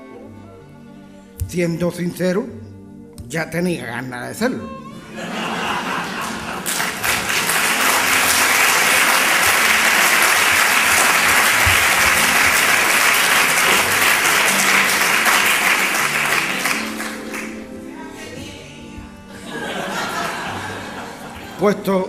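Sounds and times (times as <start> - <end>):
audience applauding: 5.2 - 17.8, 19.4 - 21.8.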